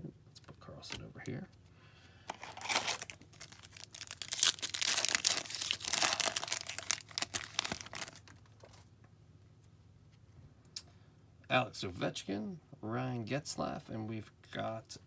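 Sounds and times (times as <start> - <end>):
foil wrapper crinkling: 2.3 - 8.8.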